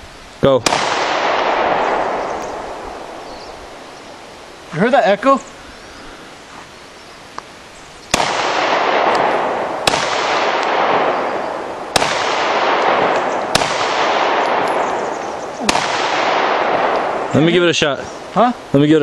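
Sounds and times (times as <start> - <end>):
pistol shots with echo: 0.6 - 3.8, 8.1 - 17.6.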